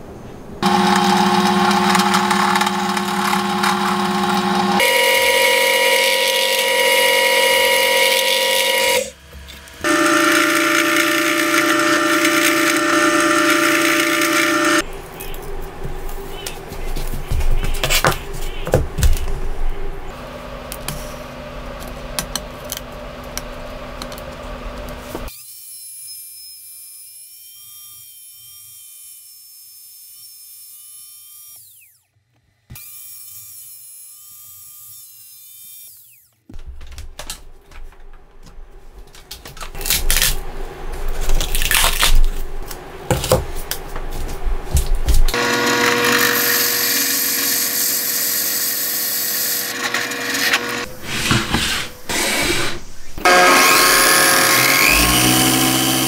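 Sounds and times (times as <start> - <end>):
router cutting wood: 0.6 - 14.8, 45.3 - 56.0
trim router whine: 0.6 - 15.0, 45.3 - 56.0.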